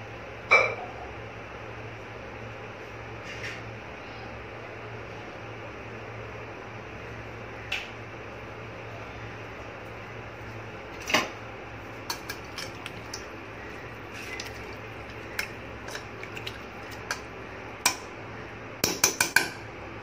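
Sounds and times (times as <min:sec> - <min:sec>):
steady low hum: 0:00.0 - 0:20.0
spoon clinking against metal pot: 0:12.1 - 0:13.3.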